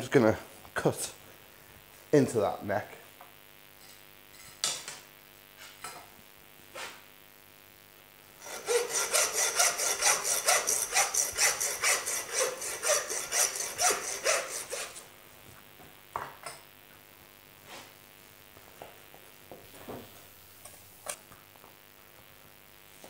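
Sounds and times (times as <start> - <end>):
bone saw rasping: 8.4 - 15.0.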